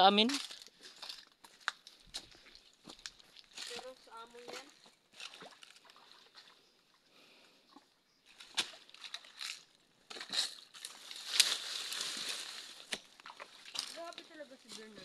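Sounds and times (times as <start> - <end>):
rustling of brushed vegetation: 0.1 - 6.0, 8.2 - 15.0
footsteps crunching through dry leaves: 0.3 - 4.4, 8.3 - 13.0.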